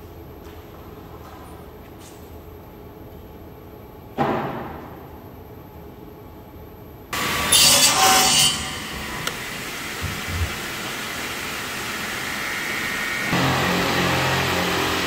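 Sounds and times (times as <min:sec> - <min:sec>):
mitre saw cutting wood: 0:07.2 - 0:15.0.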